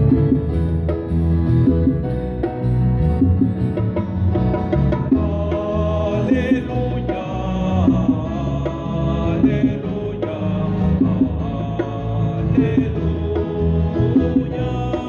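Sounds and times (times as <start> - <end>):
electric keyboard playing: 0.0 - 15.0
choir singing: 5.1 - 15.0.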